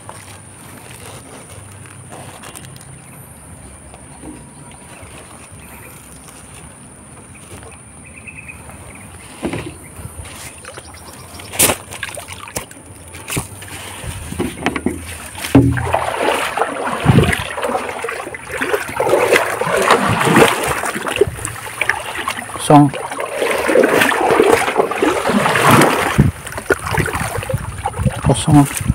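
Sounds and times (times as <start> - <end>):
water splashing in stream: 9.4 - 28.9
sharp knocks: 14.4 - 16.2.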